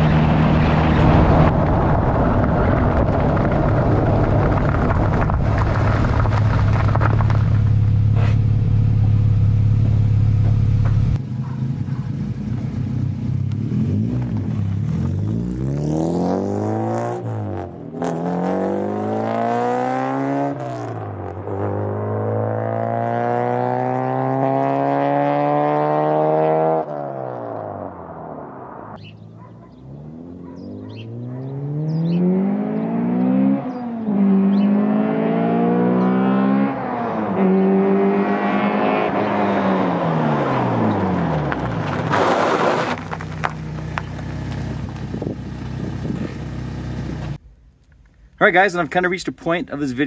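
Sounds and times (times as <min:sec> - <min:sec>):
car engine drone: 0:00.0 - 0:48.4
road noise: 0:00.0 - 0:50.0
car accelerating through gears: 0:13.5 - 0:28.1, 0:29.1 - 0:43.0.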